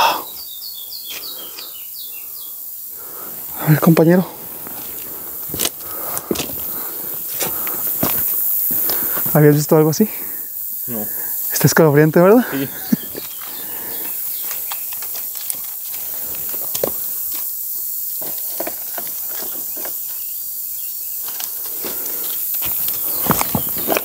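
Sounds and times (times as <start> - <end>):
steady high hiss: 0.0 - 24.0
footsteps crunching over dry leaves: 4.3 - 9.4, 12.6 - 17.6, 21.2 - 24.0
small clicks and crunches: 14.4 - 17.5.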